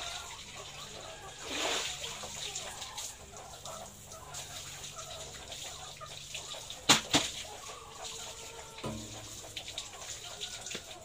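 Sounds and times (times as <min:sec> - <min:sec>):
hens clucking softly: 0:00.0 - 0:11.0
sharp knocks: 0:08.8 - 0:09.3.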